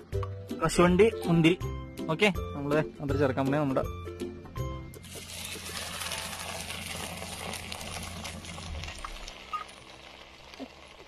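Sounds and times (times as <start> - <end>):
hot ghee sizzling in a pot: 5.0 - 11.0.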